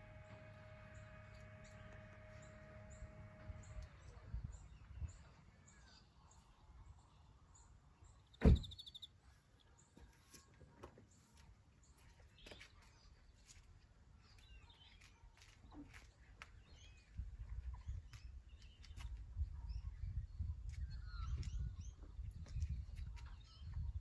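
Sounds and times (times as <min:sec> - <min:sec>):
birds chirping and calling: 0:08.1 - 0:09.1
wind buffeting the microphone: 0:16.7 - 0:24.0.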